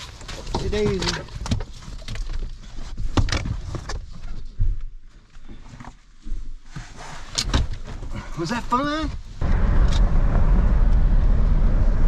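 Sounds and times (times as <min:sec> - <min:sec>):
action camera rustling and knocking: 0:00.0 - 0:08.2.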